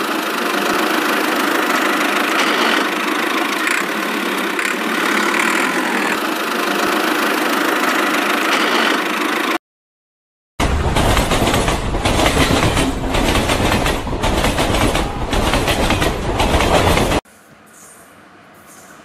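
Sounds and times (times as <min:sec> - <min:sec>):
toy tractor engine idling: 0:00.0 - 0:09.6.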